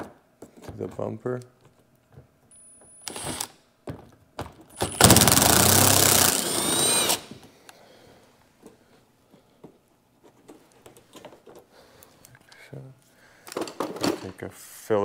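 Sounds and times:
impact driver hammering: 4.8s - 7.4s.

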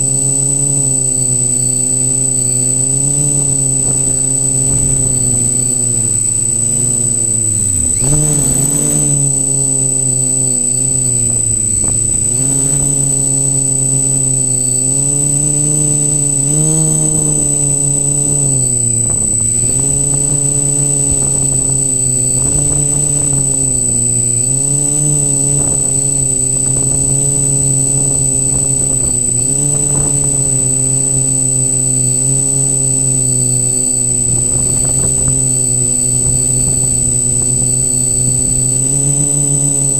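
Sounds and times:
drone motors and propellers buzzing: 0.0s - 39.9s.

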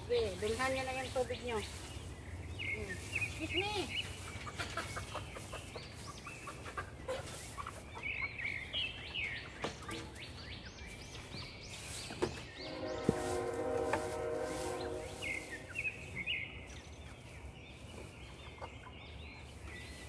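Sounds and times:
chickens clucking: 0.1s - 20.0s
plastic dish knocking in straw: 13.0s - 14.3s.

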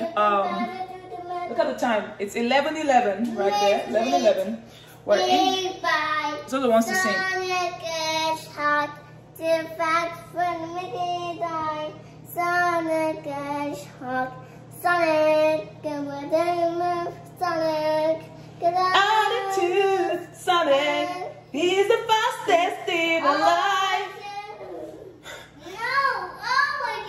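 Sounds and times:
girl singing unaccompanied: 0.0s - 1.6s, 5.2s - 21.5s.

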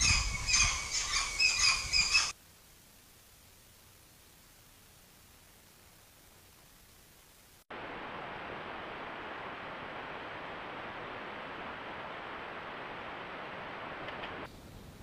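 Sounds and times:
steady rushing hiss: 0.0s - 15.0s.

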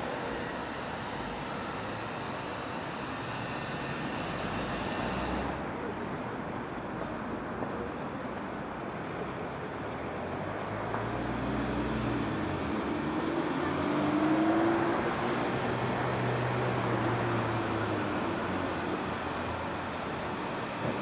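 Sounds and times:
electric train motors humming: 0.0s - 5.7s.

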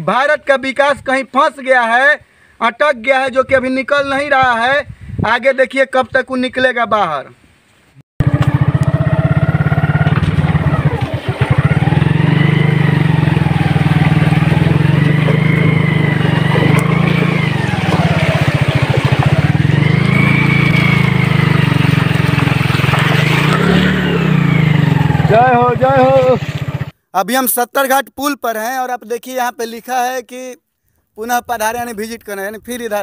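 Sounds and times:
motorbike riding through water: 8.2s - 26.9s
motorbike engine revving: 8.2s - 27.0s.

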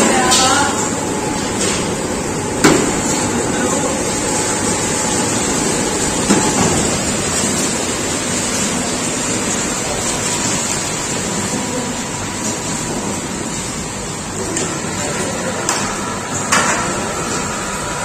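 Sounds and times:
factory machinery rushing: 0.0s - 18.0s.

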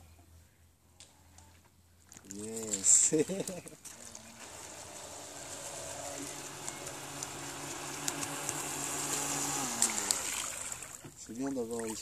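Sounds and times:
model boat electric motor humming: 3.9s - 11.1s.

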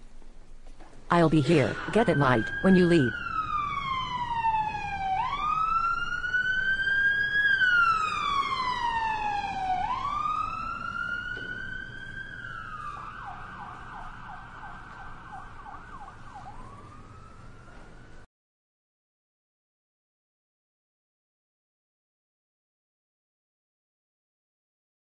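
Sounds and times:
emergency siren wailing and yelping: 1.4s - 18.2s.

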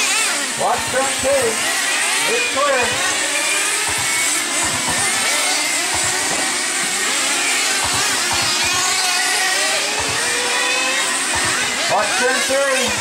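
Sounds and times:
rc car motors whining: 0.0s - 13.0s.

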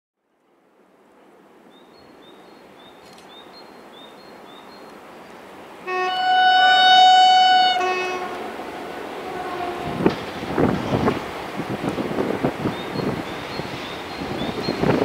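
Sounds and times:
diesel locomotive approaching: 3.9s - 15.0s
locomotive horn: 5.8s - 10.2s.

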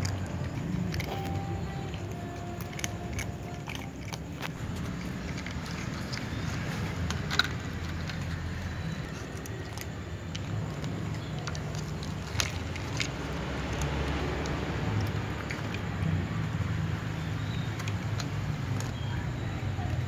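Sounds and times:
cats crunching dry kibble: 0.0s - 20.0s.

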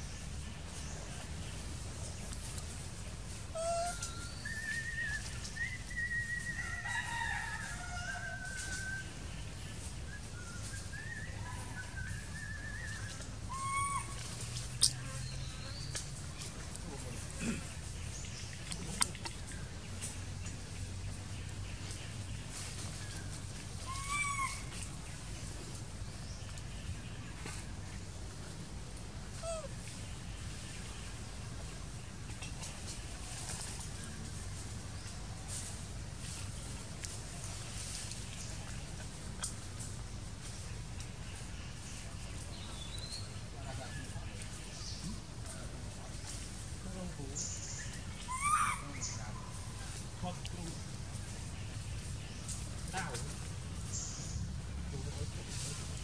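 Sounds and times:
monkey high coo: 3.5s - 5.3s, 11.5s - 14.4s, 23.8s - 24.7s, 29.3s - 29.8s, 48.2s - 49.6s
faint brief monkey call: 3.6s - 4.3s, 13.5s - 14.4s, 48.3s - 49.2s
high whistled animal calls: 3.6s - 6.7s, 10.6s - 14.4s, 23.8s - 24.7s, 48.2s - 49.3s.

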